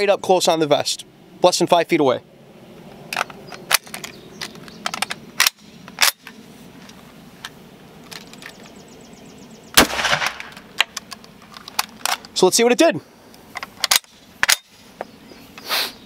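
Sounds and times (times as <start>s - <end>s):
rifle metallic clicks: 3.1s - 6.4s, 9.8s - 12.3s, 13.6s - 14.8s
rifle shot with echo: 9.8s - 10.6s.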